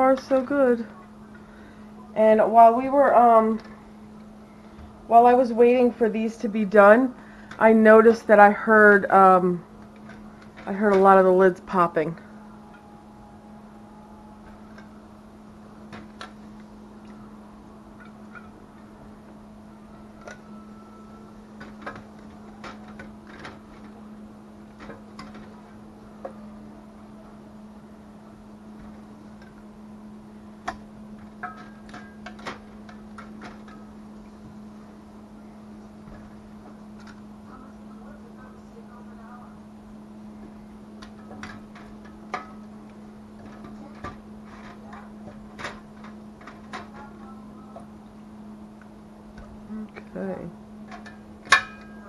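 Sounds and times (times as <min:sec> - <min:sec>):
steady low hum: 0:00.0 - 0:52.0
metal clicks and knocks: 0:21.6 - 0:24.0, 0:24.7 - 0:26.4, 0:30.6 - 0:33.9, 0:41.0 - 0:42.8.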